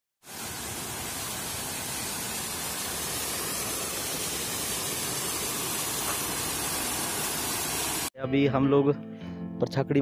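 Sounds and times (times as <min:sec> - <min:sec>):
waterfall rushing over rocks: 0:00.2 - 0:08.1.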